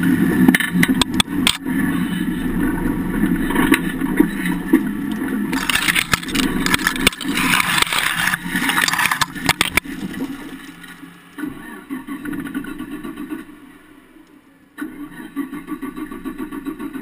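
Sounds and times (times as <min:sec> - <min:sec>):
vehicle engine running: 0:00.0 - 0:17.0
grass and twigs scraping underside: 0:03.4 - 0:11.3.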